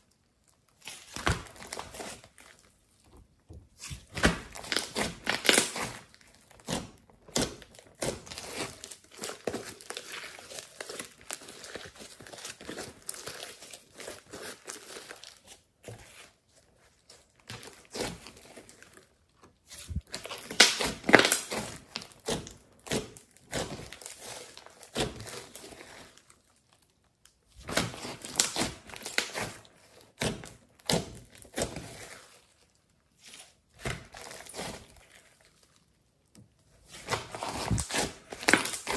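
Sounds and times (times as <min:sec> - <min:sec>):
slime squishing crackles and pops: 0:03.7 - 0:15.5, 0:19.9 - 0:26.0, 0:27.2 - 0:32.0, 0:36.9 - 0:38.9.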